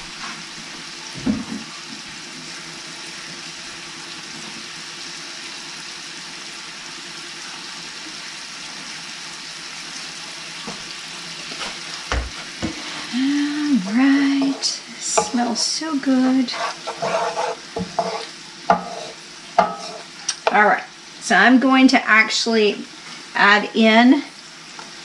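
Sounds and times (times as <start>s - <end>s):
herbs sizzling in oil: 0.0s - 25.0s.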